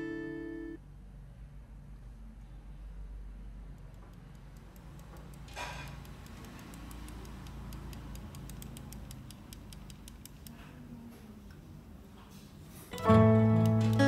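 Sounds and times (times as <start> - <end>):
toy tank wheels ticking on wood: 3.9 - 10.5.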